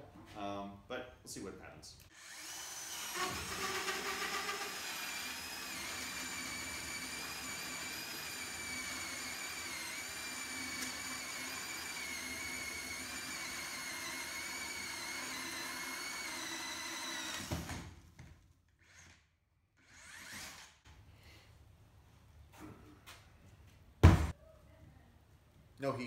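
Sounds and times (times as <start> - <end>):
drill motor whine: 2.1 - 17.8
sharp thump: 24.0 - 24.3.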